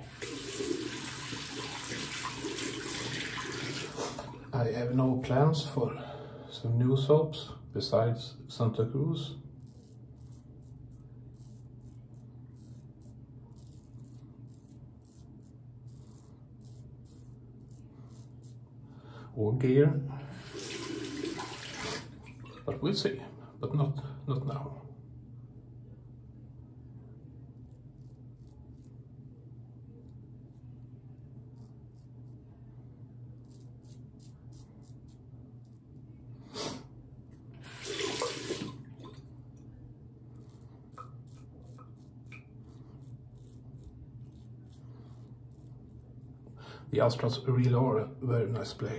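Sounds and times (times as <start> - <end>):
water running from tap: 0.0 - 4.3, 20.4 - 22.7, 37.6 - 39.2
razor scraping beard stubble: 9.6 - 18.7, 27.5 - 29.2, 31.5 - 32.5, 33.4 - 36.0, 40.3 - 46.6.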